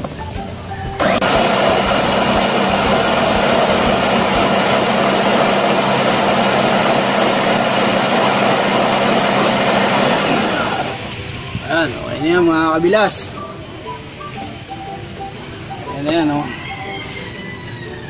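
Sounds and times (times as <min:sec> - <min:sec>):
electric food chopper whirring: 0:01.0 - 0:11.4.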